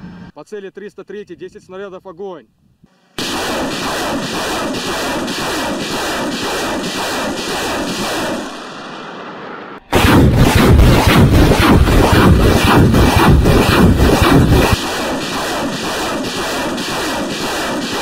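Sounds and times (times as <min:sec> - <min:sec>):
loud rushing noise: 0:03.2 - 0:18.0
rocket launcher firing salvo: 0:03.2 - 0:18.0.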